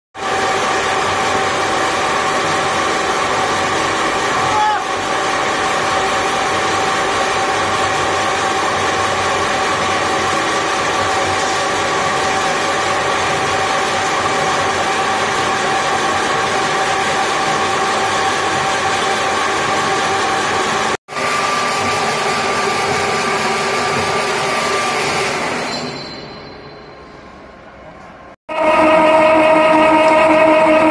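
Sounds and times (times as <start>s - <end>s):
extruder motor whine: 28.5s - 30.9s.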